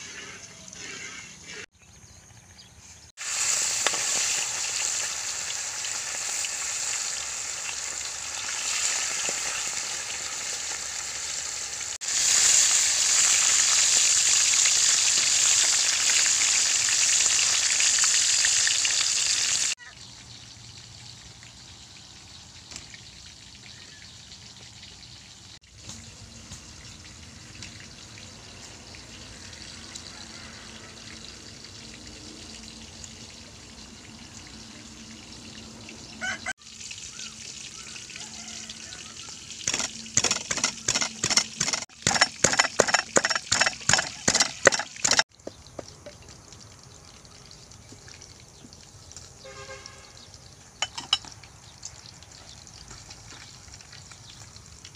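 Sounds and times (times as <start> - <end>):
food frying in a wok: 3.2 - 54.9
pestle pounding in mortar: 39.7 - 45.2.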